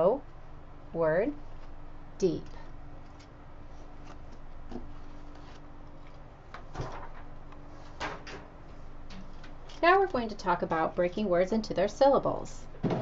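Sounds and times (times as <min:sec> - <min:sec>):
faint steady hum: 0:00.0 - 0:13.0
paper flip chart knocks and rustles: 0:06.5 - 0:07.3.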